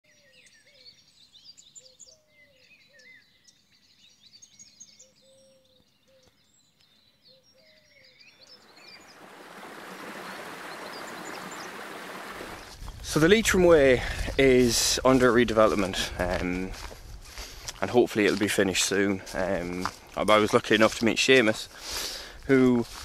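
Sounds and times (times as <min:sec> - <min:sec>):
birds chirping and whistling: 0:00.1 - 0:13.0
fast-flowing river rushing: 0:08.7 - 0:13.2.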